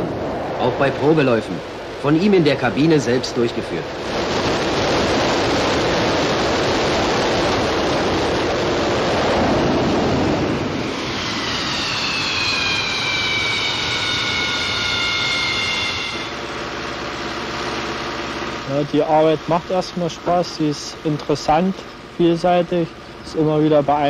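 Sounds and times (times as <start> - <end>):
jet engine roaring: 0.0 - 23.5
high whining tones: 9.9 - 24.0.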